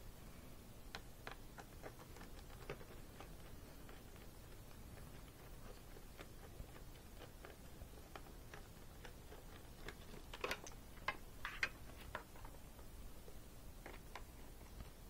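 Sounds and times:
plastic clacks: 9.8s - 12.6s.

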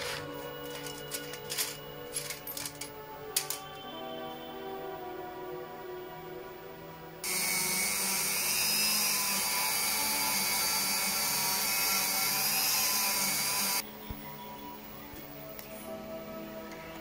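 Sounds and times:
die grinder whining: 7.2s - 13.8s.

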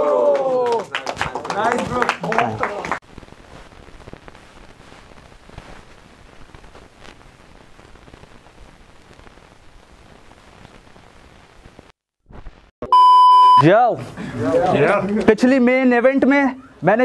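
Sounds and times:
crackling static with clicks: 2.8s - 12.7s.

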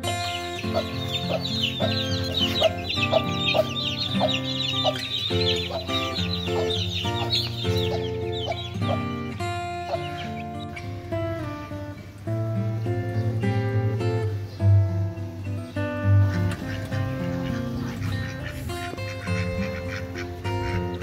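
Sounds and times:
acoustic guitar music: 0.0s - 21.0s
chicks peeping: 0.1s - 11.1s, 16.2s - 21.0s
hen clucking: 0.1s - 11.4s, 16.1s - 21.0s.

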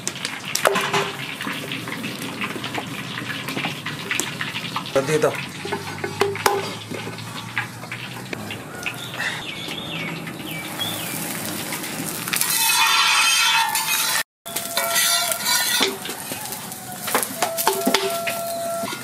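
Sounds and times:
flatbread sizzling in oil: 0.0s - 19.0s
metal spatula scraping a pan: 4.8s - 8.4s, 12.3s - 19.0s.

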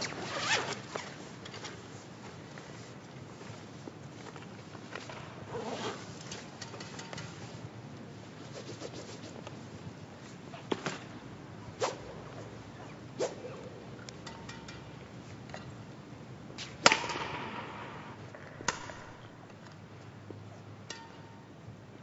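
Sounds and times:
badminton racquet striking shuttlecock: 16.6s - 19.2s.

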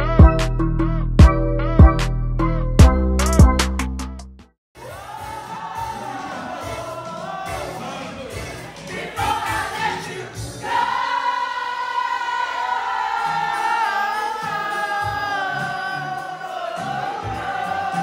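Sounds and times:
party music with bass beat: 0.0s - 4.2s, 4.8s - 11.0s
many voices singing: 4.8s - 18.0s.

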